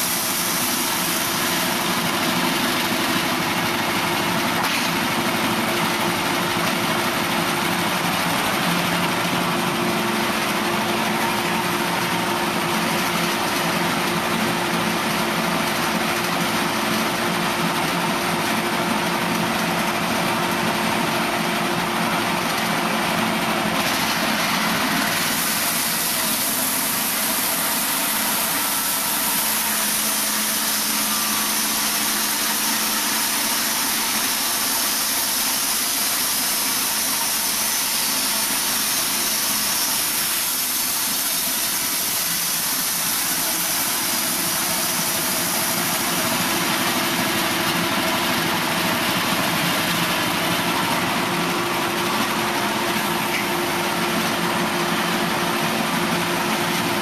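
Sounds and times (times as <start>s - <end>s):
high hiss: 0.0s - 3.0s, 23.9s - 51.4s
band blade sawing log: 0.0s - 17.2s, 23.5s - 54.4s
sawmill engine droning: 0.0s - 57.0s.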